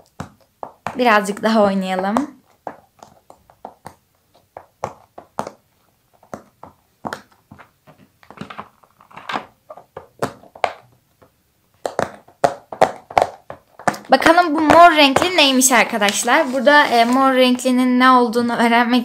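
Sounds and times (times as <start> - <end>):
pop-it toy bubbles popping: 9.9 - 15.3.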